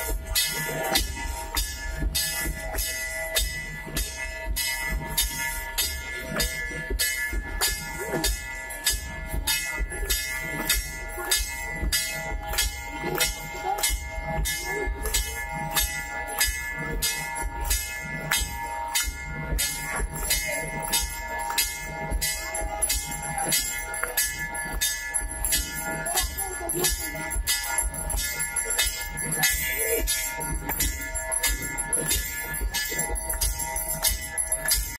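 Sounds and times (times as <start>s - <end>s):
bells ringing: 0.0s - 34.9s
sharp metallic strikes: 0.0s - 34.9s.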